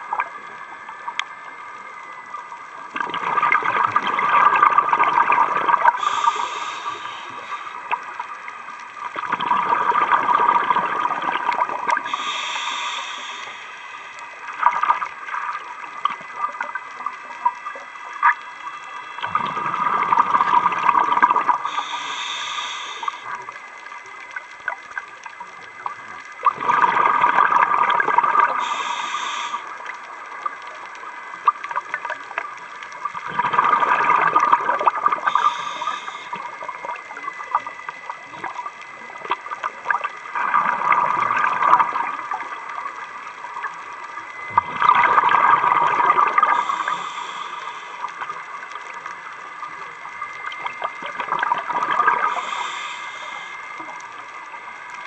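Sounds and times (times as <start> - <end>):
rush of exhaled bubbles: 2.9 - 8.3, 9.0 - 12.8, 14.5 - 16.8, 19.2 - 22.2, 26.4 - 28.9, 33.1 - 43.0, 44.3 - 48.4, 50.4 - 53.6
breathing through regulator: 5.9 - 8.0, 12.0 - 14.4, 21.5 - 23.4, 28.4 - 29.9, 34.8 - 36.9, 45.1 - 48.4, 52.0 - 53.9.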